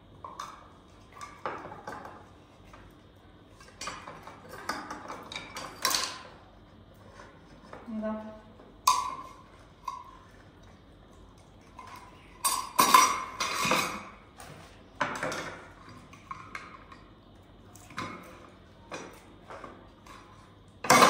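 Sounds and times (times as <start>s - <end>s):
dishes and cutlery clinking: 3.6s - 6.3s, 11.7s - 14.2s, 17.8s - 21.0s.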